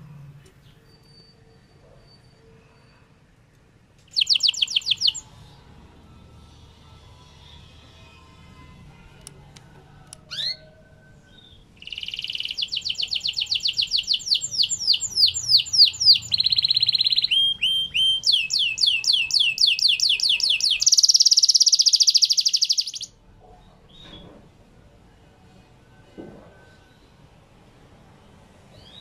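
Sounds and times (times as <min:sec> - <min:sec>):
canary singing: 0:04.0 - 0:05.7, 0:10.2 - 0:23.2.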